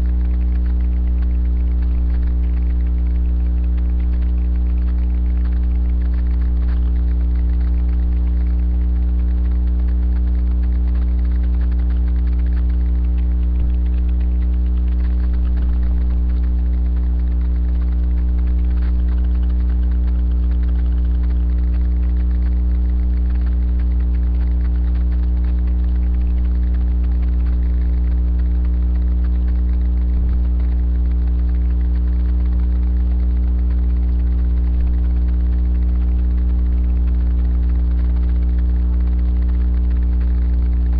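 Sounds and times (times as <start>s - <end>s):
electrical mains hum: 0.0s - 40.9s.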